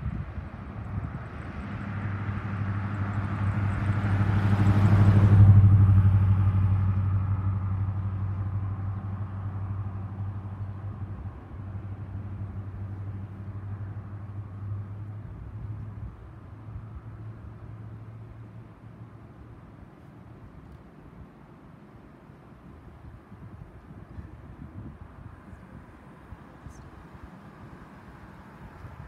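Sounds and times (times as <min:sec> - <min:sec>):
low engine hum: 0:00.0 - 0:29.0
motor vehicle passing: 0:01.0 - 0:16.1.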